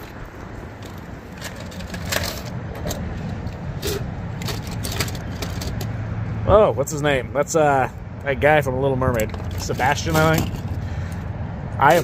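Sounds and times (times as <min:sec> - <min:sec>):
toy cars clicking and clattering: 0:00.8 - 0:05.9.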